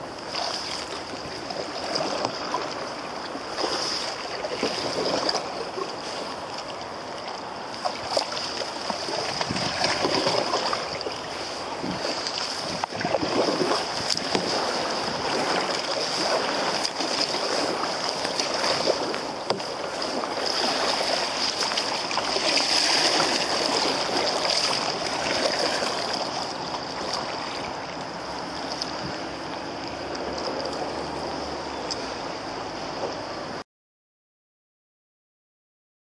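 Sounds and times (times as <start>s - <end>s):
river rushing around canoe hull: 0.0s - 33.6s.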